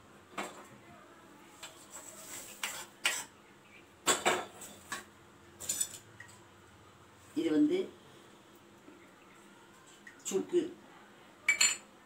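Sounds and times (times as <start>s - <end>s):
spatula scraping metal pan: 1.9s - 3.4s.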